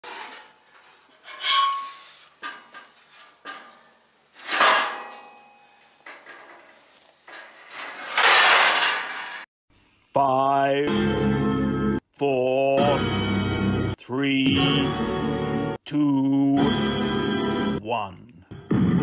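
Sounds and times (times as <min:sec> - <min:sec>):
metallic clanks: 0:00.0 - 0:09.5.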